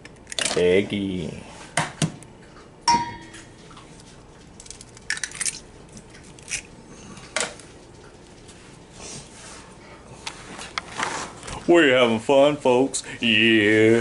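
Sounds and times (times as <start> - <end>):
egg cracking on metal bowl: 4.6 - 6.7.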